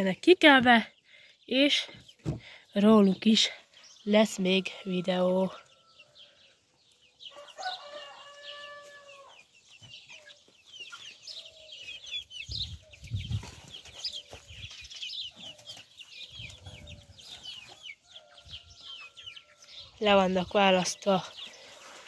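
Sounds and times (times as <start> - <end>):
chickens clucking: 0.5 - 22.0
chicken drawn-out call: 7.3 - 9.5.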